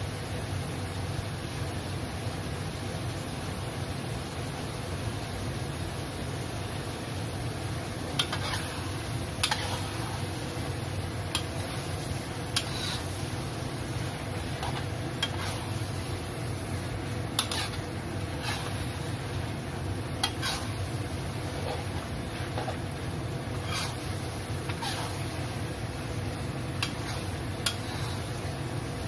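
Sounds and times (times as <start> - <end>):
steady low rumble: 7.6 - 29.0
metal spatula scraping a wok: 8.2 - 10.4, 11.3 - 25.6, 26.8 - 28.5.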